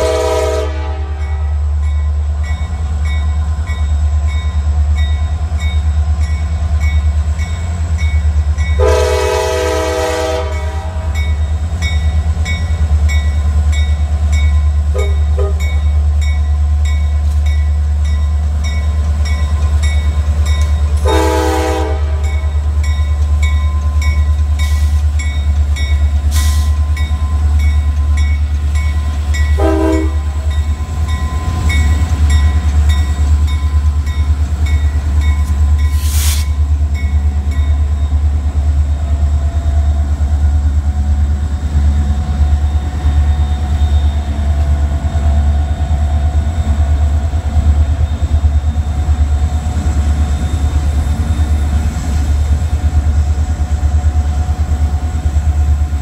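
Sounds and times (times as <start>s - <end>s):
train air horn blasts: 0.0s - 1.6s, 8.8s - 11.2s, 21.0s - 22.4s, 29.6s - 30.4s
diesel locomotives rumbling: 0.0s - 56.0s
crossing warning bell ringing: 1.0s - 40.5s.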